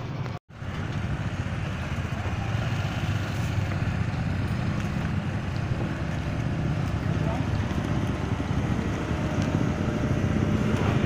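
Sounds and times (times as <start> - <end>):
excavator engine rumbling: 0.0 - 11.0
motorcycle engine running: 0.0 - 11.0.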